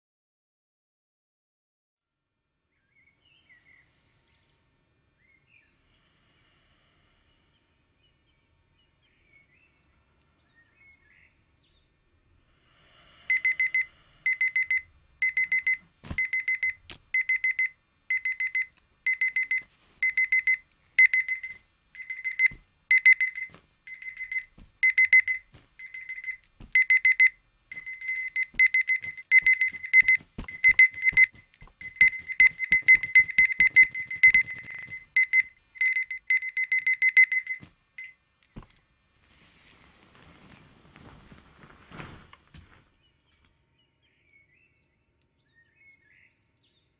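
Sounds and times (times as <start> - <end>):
alarm clock beeping: 13.3 - 38.2.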